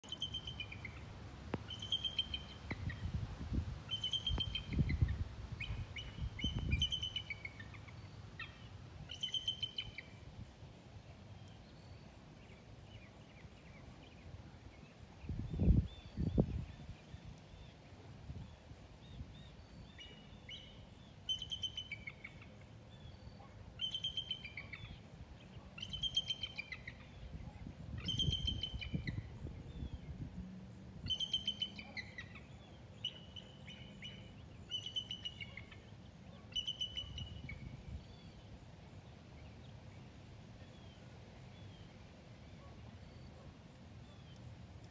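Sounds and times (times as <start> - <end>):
eagle piping chirps: 1.7 - 3.0, 3.9 - 10.1, 28.0 - 29.3.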